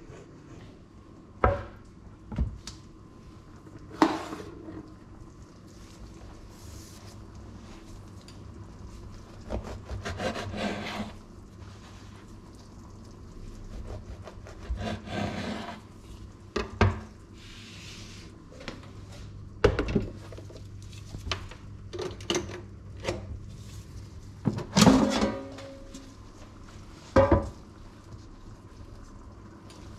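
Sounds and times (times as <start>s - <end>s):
knife sawing through bread: 9.5s - 11.2s, 13.8s - 15.8s
knife scraping cutting board: 9.5s - 11.2s, 14.0s - 15.8s.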